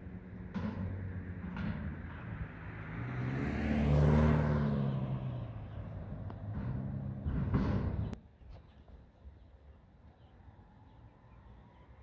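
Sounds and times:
diesel truck engine revving: 2.4 - 8.2.

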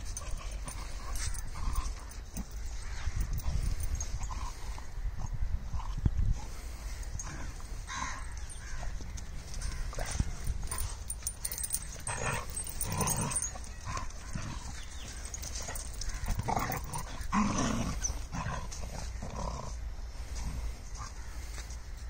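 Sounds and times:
dogs fighting: 7.2 - 19.8.

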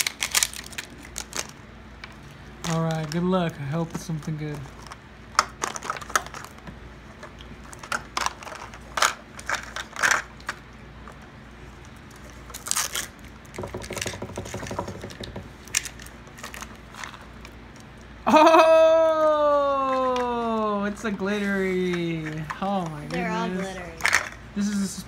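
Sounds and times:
plastic and foil crackling: 0.0 - 6.6, 7.2 - 13.5, 15.6 - 18.2.

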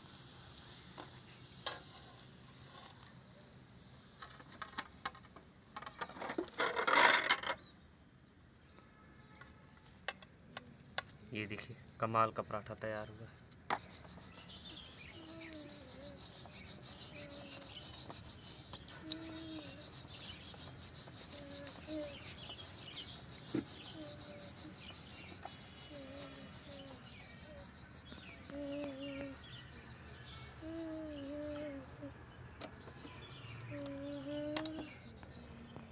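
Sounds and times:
rolling pin scraping dough: 13.7 - 31.6.

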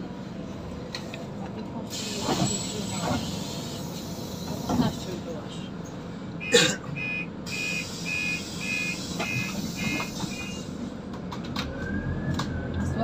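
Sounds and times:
idling bus hum: 0.0 - 13.0
high-pitched door warning beeps: 6.4 - 10.6.

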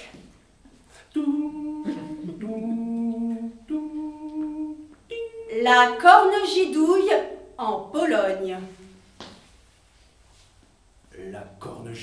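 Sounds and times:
person humming: 1.0 - 5.9.

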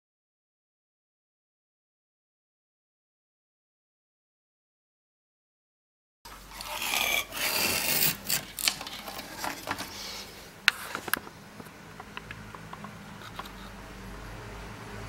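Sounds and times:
rubbing and scraping: 6.3 - 11.3.

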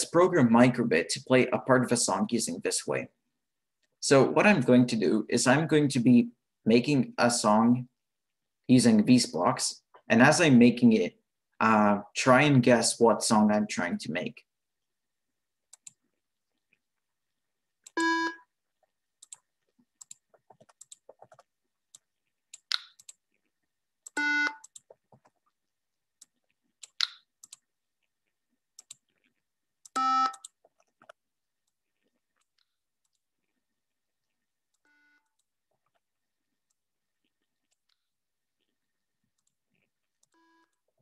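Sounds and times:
mouse and keyboard clicks: 20.0 - 23.2, 26.8 - 27.6.

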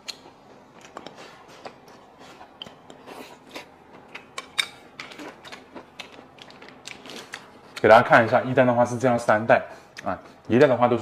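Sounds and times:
person chewing crunchy food: 0.0 - 7.8.

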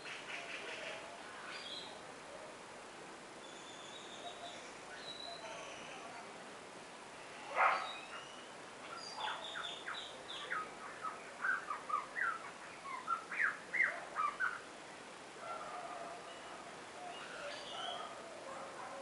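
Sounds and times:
songbird chirping: 0.0 - 2.6, 3.3 - 6.3, 7.0 - 19.0.

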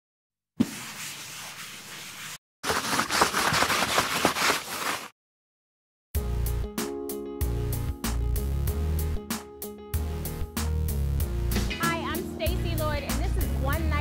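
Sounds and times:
chalk scratching on board: 0.6 - 5.1
eraser rubbing on blackboard: 0.6 - 5.1
music: 6.2 - 14.0.

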